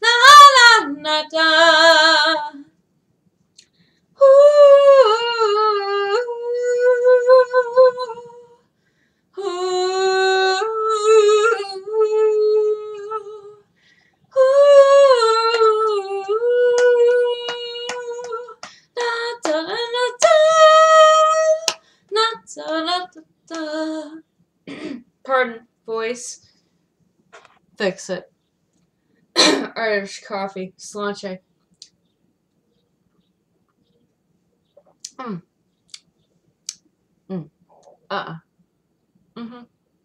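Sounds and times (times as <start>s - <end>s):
woman singing unaccompanied: 0.0s - 2.7s, 4.2s - 8.6s, 9.4s - 13.7s, 14.3s - 24.2s.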